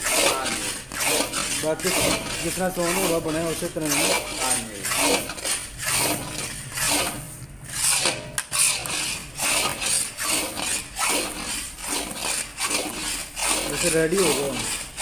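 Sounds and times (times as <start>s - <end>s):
metal spatula scraping iron pan: 0.0s - 15.0s.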